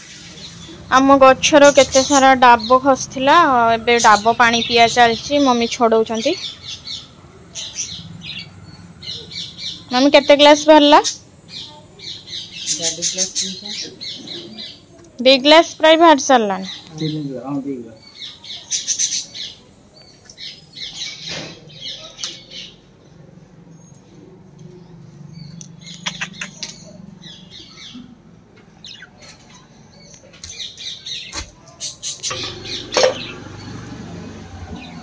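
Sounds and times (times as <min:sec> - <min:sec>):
budgerigars chirping and squawking: 0:00.1 - 0:15.0, 0:25.3 - 0:28.1, 0:28.7 - 0:33.5, 0:34.7 - 0:35.0.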